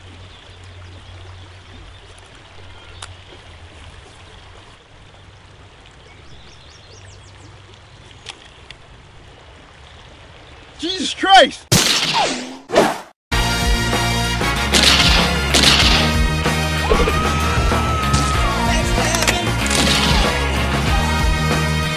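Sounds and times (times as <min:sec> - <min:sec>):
faint clicks: 0:02.0 - 0:03.4, 0:07.7 - 0:08.9.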